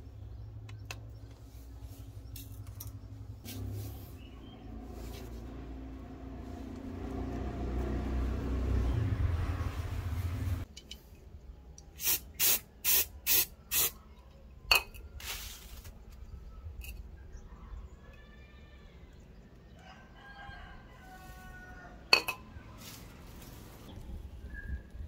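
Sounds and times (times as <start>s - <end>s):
spray can hissing: 12.0s - 14.0s.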